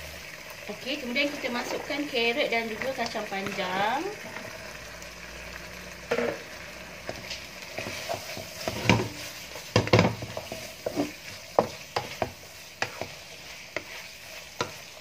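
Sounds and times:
food sizzling in a wok: 0:00.0 - 0:15.0
spatula knocking and scraping pan: 0:06.1 - 0:15.0.

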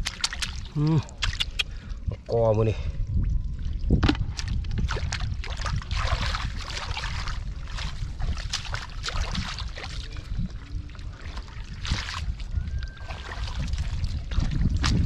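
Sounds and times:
muddy water splashing: 0:00.0 - 0:15.0
steady low rumble: 0:00.0 - 0:15.0.

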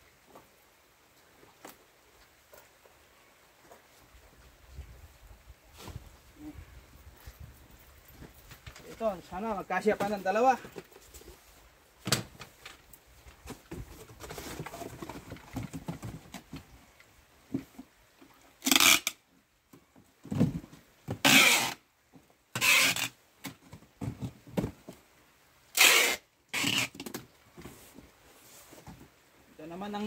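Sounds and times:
cardboard box rustling and knocking: 0:13.4 - 0:16.7
packing tape screeching off roll: 0:18.6 - 0:19.2, 0:21.1 - 0:21.8, 0:22.6 - 0:23.2, 0:25.7 - 0:27.2.

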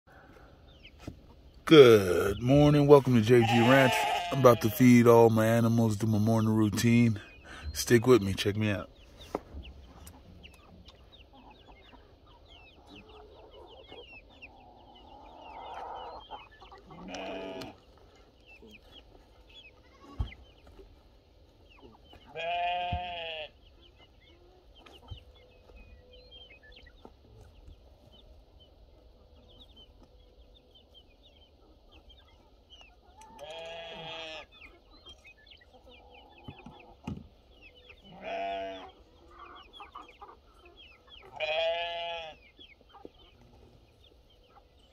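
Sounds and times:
chickens clucking and chirping: 0:00.1 - 0:44.9
goats bleating: 0:02.0 - 0:05.6, 0:16.8 - 0:17.8, 0:22.3 - 0:23.6, 0:33.4 - 0:34.5, 0:38.0 - 0:39.0, 0:41.2 - 0:42.4.

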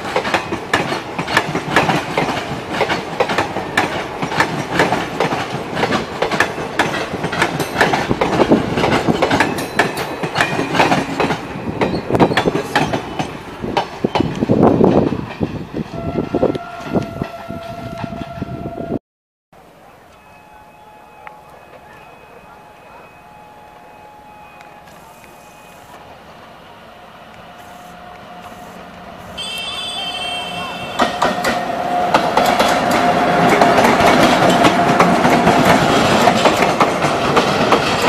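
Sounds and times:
train wheels clattering over joints: 0:00.0 - 0:15.7, 0:30.9 - 0:38.0
train rumble: 0:00.0 - 0:19.0, 0:19.6 - 0:38.0
train horn: 0:15.9 - 0:19.0, 0:20.0 - 0:26.0, 0:27.3 - 0:36.2.

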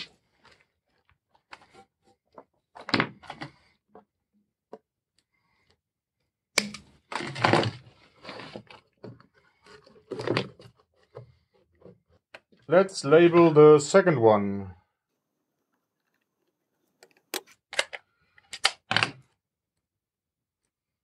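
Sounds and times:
plastic hose rustling and scraping: 0:00.0 - 0:04.1, 0:07.0 - 0:12.8.

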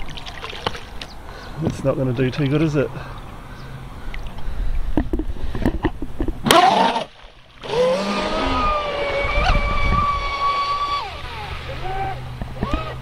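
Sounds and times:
splashes in shallow water: 0:00.0 - 0:01.2
rc boat motor high whine: 0:06.4 - 0:13.0.

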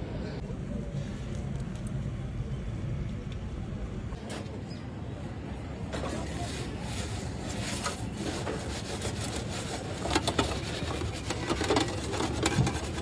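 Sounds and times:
low background noise: 0:00.0 - 0:13.0
metal peel scraping brick: 0:08.0 - 0:13.0.

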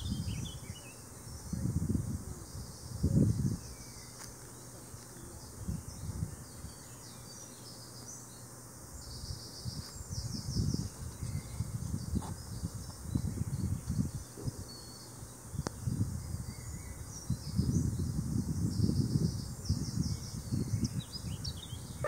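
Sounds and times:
wind buffeting microphone: 0:00.0 - 0:00.7, 0:01.3 - 0:03.7, 0:05.5 - 0:06.8, 0:09.2 - 0:14.6, 0:15.5 - 0:22.0
steady outdoor hiss: 0:00.0 - 0:22.0.

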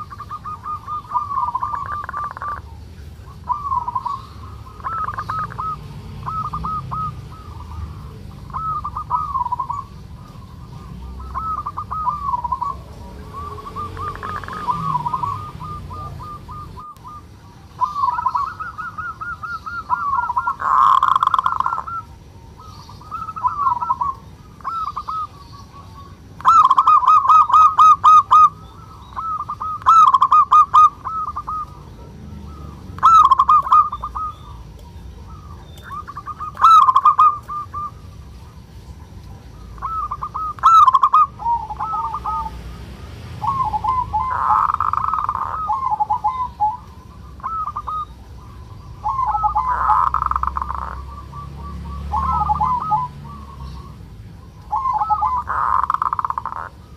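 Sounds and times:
dove cooing: 0:00.0 - 0:56.9.

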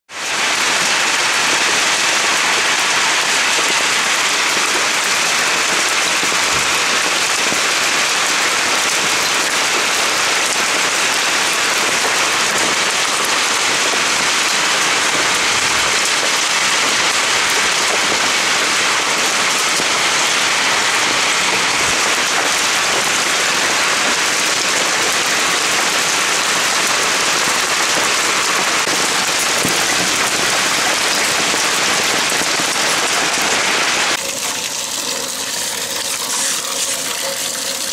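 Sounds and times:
hail and heavy rain pelting: 0:00.1 - 0:37.9.

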